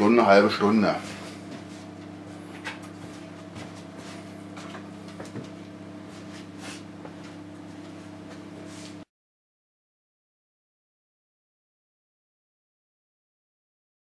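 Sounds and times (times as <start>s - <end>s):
electric oven humming: 0.0s - 9.1s.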